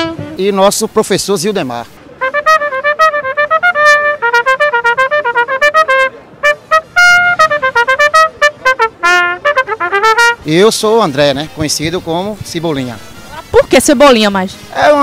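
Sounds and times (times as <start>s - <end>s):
solo trumpet playing fast notes: 2.2s - 10.7s.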